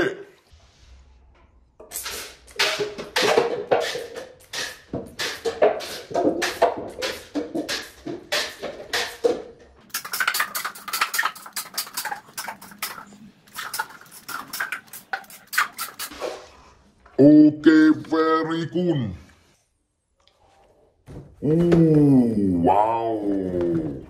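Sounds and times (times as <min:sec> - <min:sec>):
paper cups clattering: 0:02.0 - 0:16.5.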